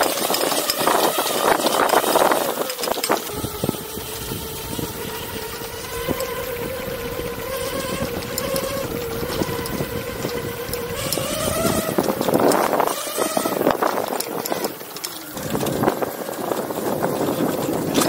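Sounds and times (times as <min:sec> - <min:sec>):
electric motors whining: 0:00.0 - 0:18.0
knocks and rattles: 0:07.4 - 0:18.0.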